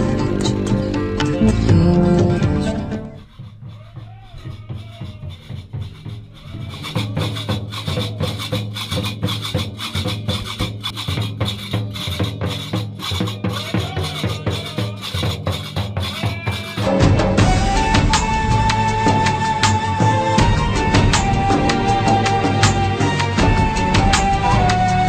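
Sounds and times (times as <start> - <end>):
drum strokes: 0.0 - 25.0
iron castanets clacking: 3.2 - 16.9.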